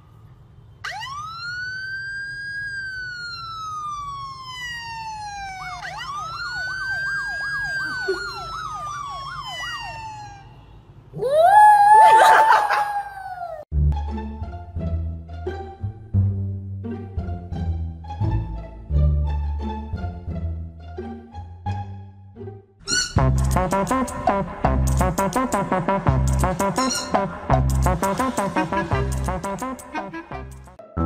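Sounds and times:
siren wailing and yelping: 0:00.8 - 0:10.6, 0:11.2 - 0:13.6, 0:26.8 - 0:27.2
small dog howling: 0:11.2 - 0:13.6.

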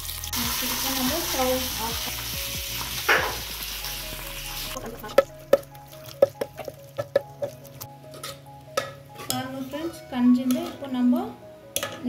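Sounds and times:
spices sizzling in hot oil: 0:00.0 - 0:07.9
wooden spoon knocking metal pot: 0:05.0 - 0:07.6.

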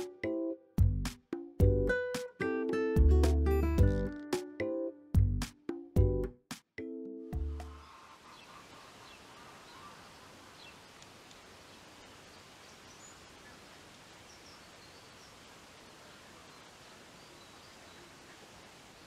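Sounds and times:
faint bird chirps: 0:07.7 - 0:19.0
low background hiss: 0:07.8 - 0:19.0.

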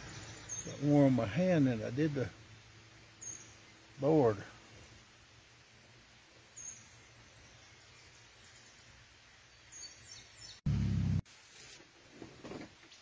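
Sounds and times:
birds chirping: 0:00.0 - 0:05.1, 0:05.8 - 0:10.6.

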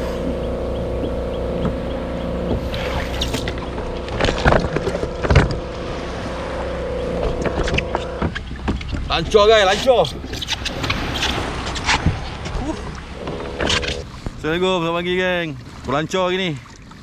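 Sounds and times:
motor humming: 0:00.0 - 0:09.1, 0:12.7 - 0:14.2.

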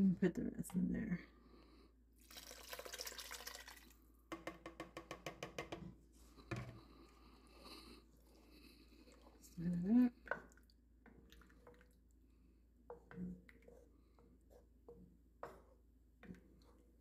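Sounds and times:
broth splashing pour: 0:02.2 - 0:04.0
liquid dripping: 0:02.2 - 0:04.0.

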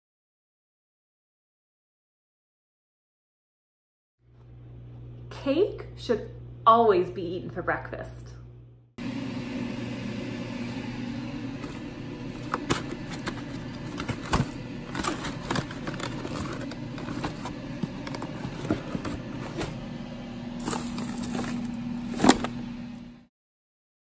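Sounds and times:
low steady hum: 0:04.3 - 0:23.3
packaging crackling and scraping: 0:11.6 - 0:19.9, 0:20.6 - 0:22.6.

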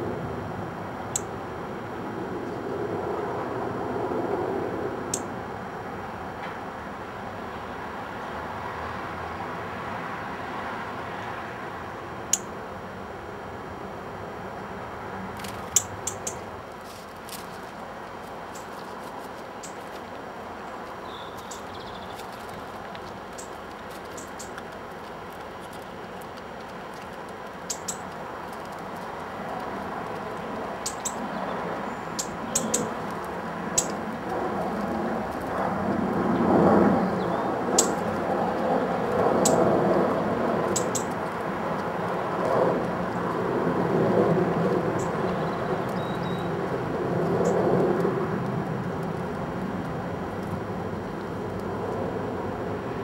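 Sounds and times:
outdoor background noise: 0:00.0 - 0:53.0
pigeon pecking on concrete: 0:16.8 - 0:31.0.

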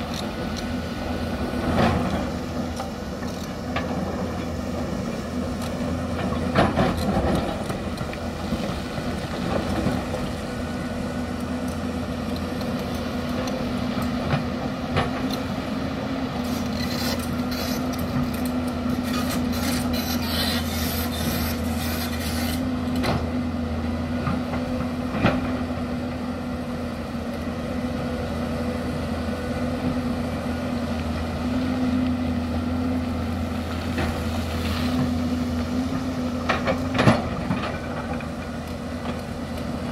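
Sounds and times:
excavator diesel engine running: 0:00.0 - 0:39.9
steel bucket scraping rocky soil: 0:19.0 - 0:22.7.

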